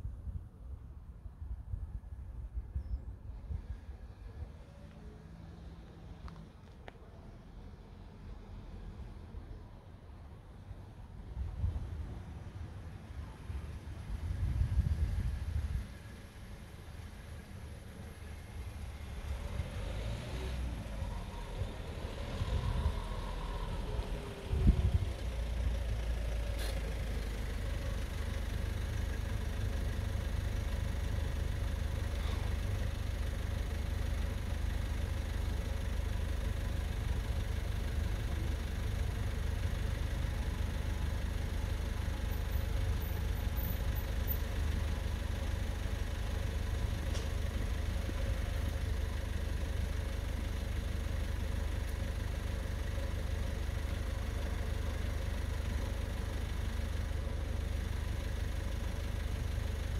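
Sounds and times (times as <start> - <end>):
engine idling: 20.9 - 59.9.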